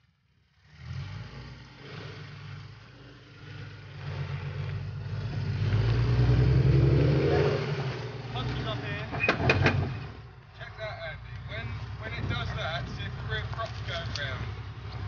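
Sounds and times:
buggy engine working under load: 0.0s - 15.0s.

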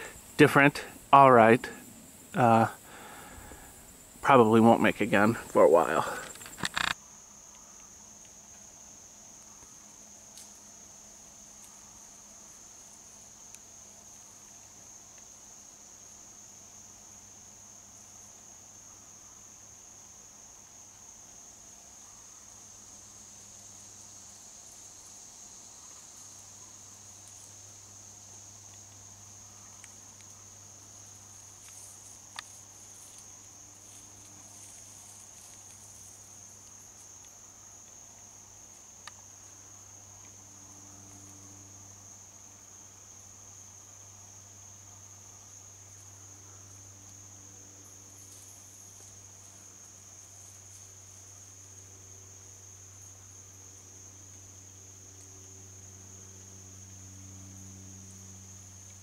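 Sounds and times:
insects trilling: 0.0s - 59.0s
sharp clicks: 6.2s - 7.0s.

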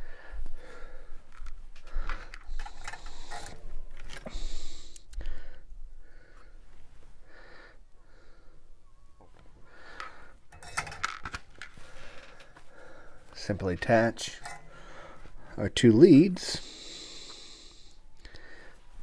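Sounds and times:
soldering tools clicking and rustling: 10.5s - 12.5s.

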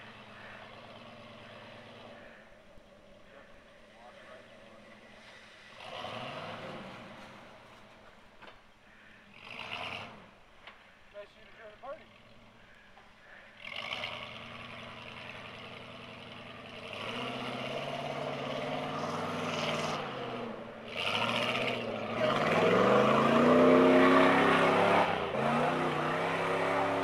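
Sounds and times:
engine revving under load: 0.0s - 2.4s, 4.3s - 8.0s, 9.3s - 10.4s, 13.5s - 27.0s.

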